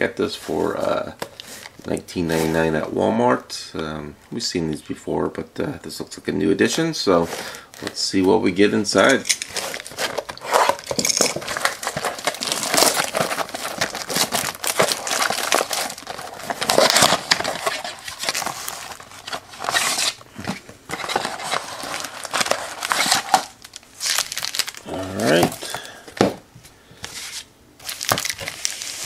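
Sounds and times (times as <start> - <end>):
plastic wrap crinkling: 9.0 - 26.4, 27.0 - 29.0.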